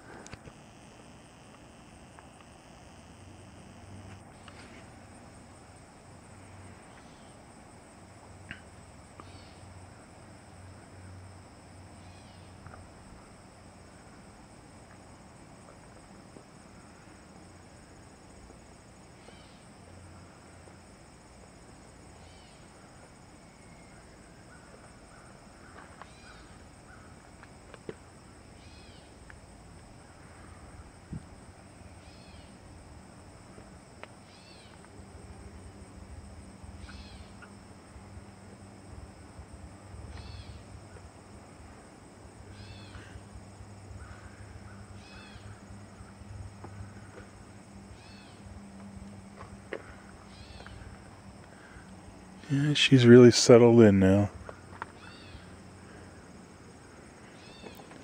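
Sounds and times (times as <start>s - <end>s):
high insect drone: 0.0s - 58.0s.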